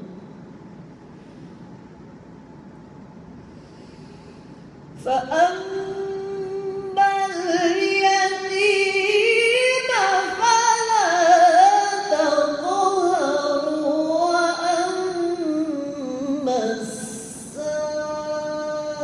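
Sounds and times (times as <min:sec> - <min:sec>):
woman chanting recitation: 0:05.0 - 0:19.0.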